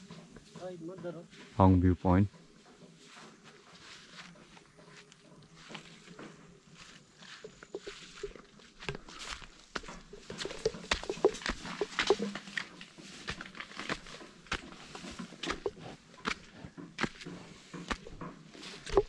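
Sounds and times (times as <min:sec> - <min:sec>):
footsteps crunching dry leaves: 0:03.0 - 0:18.9.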